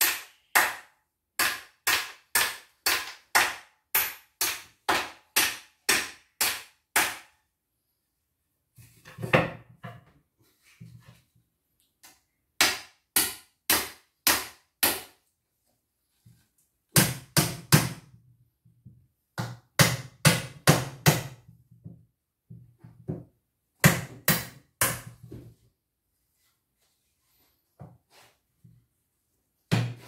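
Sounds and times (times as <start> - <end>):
hammer striking wood: 0.0 - 7.3, 12.6 - 15.2, 16.9 - 18.1, 19.4 - 21.5, 23.8 - 25.3, 29.7 - 30.0.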